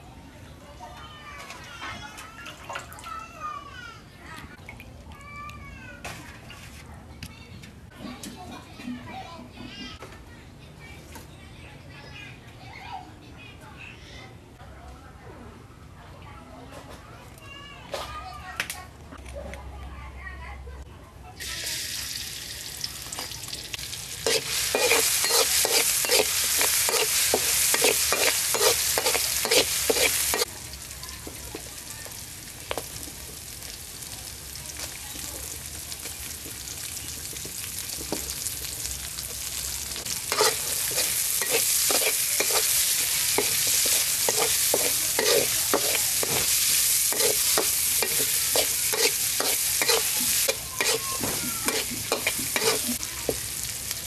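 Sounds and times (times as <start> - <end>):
chilies sizzling in hot oil: 21.4 - 54.0
metal spatula scraping a wok: 24.1 - 30.5, 40.0 - 53.4.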